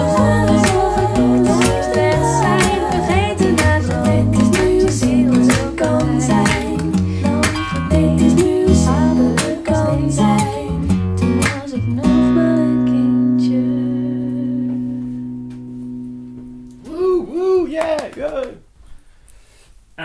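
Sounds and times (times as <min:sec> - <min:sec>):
guitar song over loudspeakers: 0:00.0 - 0:16.4.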